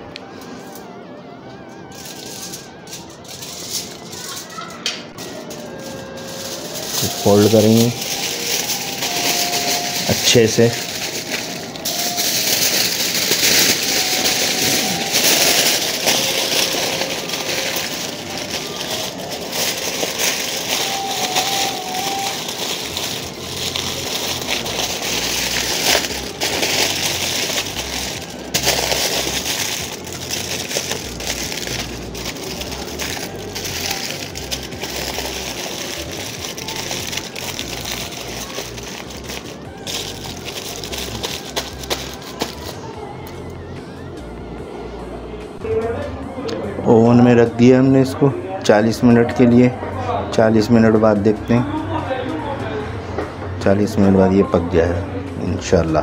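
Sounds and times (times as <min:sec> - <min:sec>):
aluminium foil crinkling: 0:01.8 - 0:42.9.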